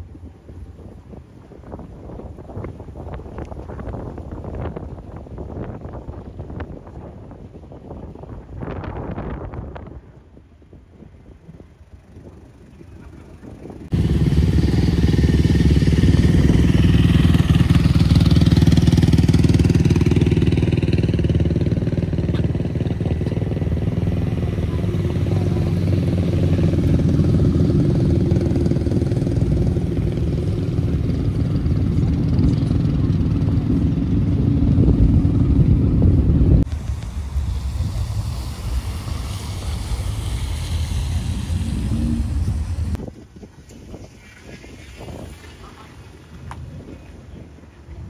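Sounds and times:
vehicle engine idling: 11.8 - 43.0.

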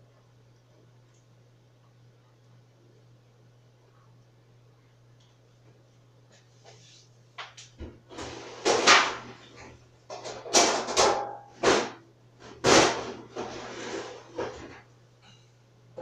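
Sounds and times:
cupboard doors and pans clattering: 7.8 - 14.8.

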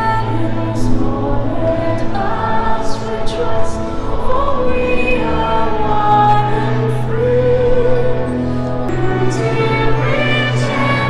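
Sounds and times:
choir-like backing: 0.0 - 11.0
voice singing with vibrato: 0.0 - 11.0.

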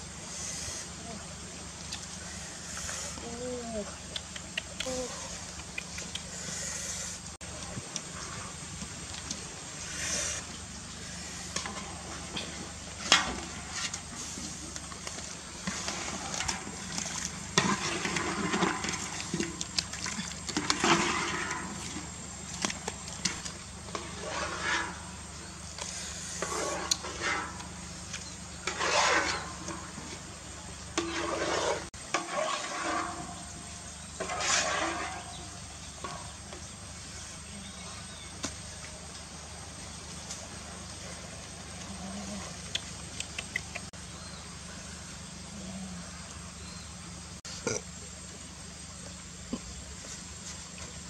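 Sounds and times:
water splashing and draining: 15.8 - 23.2.

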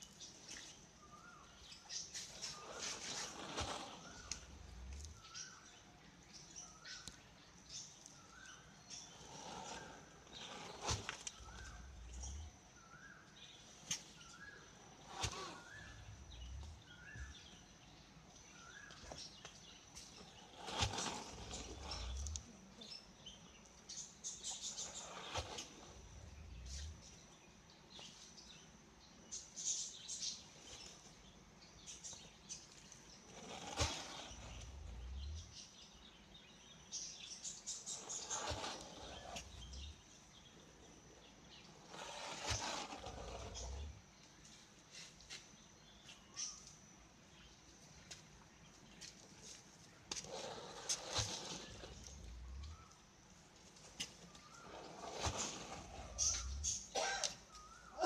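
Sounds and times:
small bird chirping: 0.0 - 58.0
turkey low drumming hum: 53.9 - 57.2.

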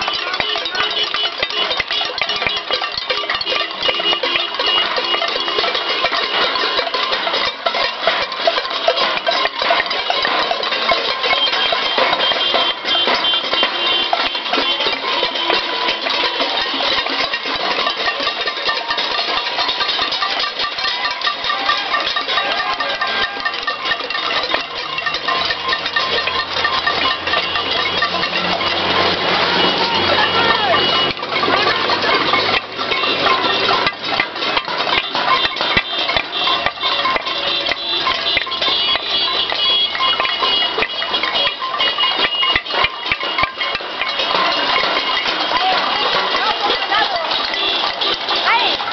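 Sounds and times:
pots and pans banging: 0.0 - 48.9
bus engine humming: 18.8 - 48.9.

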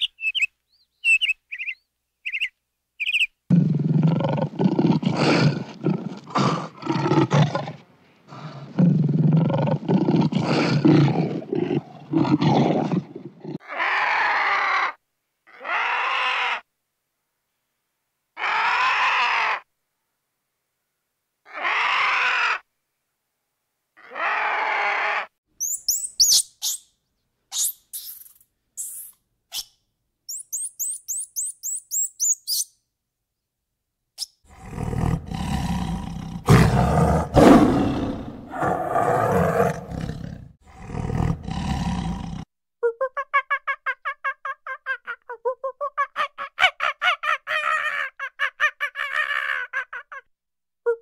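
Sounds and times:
high quick chirping calls: 0.0 - 3.4, 25.6 - 32.8
tiger roaring: 3.5 - 14.6, 34.5 - 42.5
monkey rapid pulsed calls: 25.6 - 26.9, 27.5 - 32.7.

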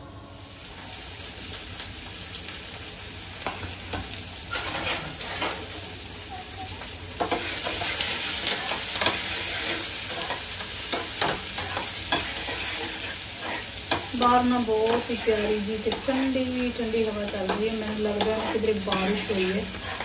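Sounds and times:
food sizzling in a frying pan: 0.1 - 20.0
spatula scraping a pan: 4.5 - 5.7, 7.2 - 20.0.

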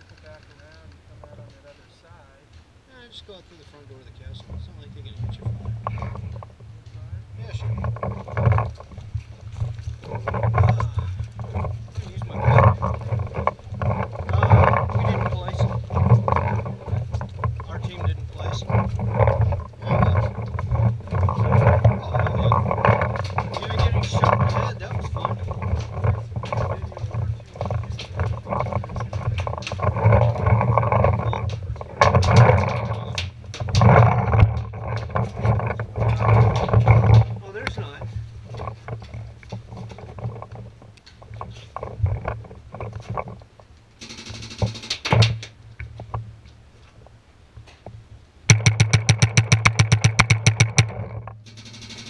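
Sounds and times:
low rumble on microphone: 0.0 - 52.0
footsteps crunching on gravel: 3.4 - 34.2
sharp clicks: 44.0 - 45.9, 48.5 - 52.0
paintball marker rapid firing: 48.5 - 50.9
thuds: 48.5 - 52.0.

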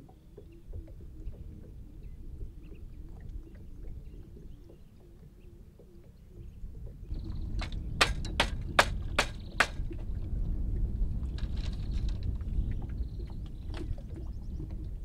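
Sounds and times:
low steady rumble: 0.0 - 15.0
hatchet chopping bamboo: 8.0 - 9.8.

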